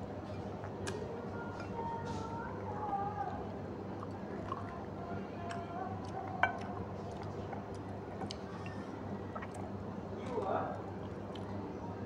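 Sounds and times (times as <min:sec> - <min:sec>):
low steady hum: 0:00.0 - 0:12.0
wet chewing and finger smacks: 0:00.6 - 0:01.1, 0:05.4 - 0:08.7, 0:11.1 - 0:11.6.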